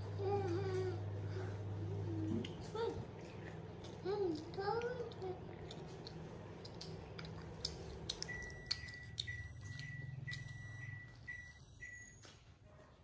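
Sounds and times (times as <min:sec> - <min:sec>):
children eating clicks: 0:02.2 - 0:11.3.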